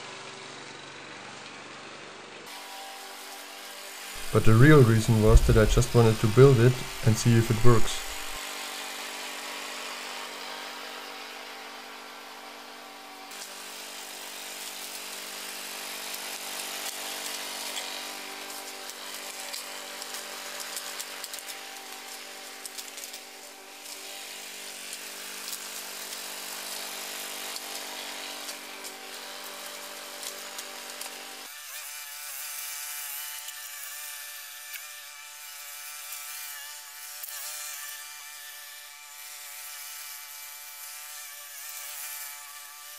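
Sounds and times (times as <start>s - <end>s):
lawn mower engine running: 10.0s - 31.3s.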